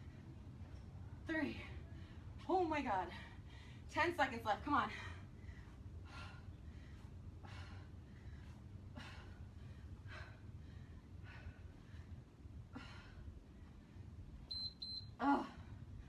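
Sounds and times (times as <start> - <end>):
woman breathing hard: 4.9 - 14.3.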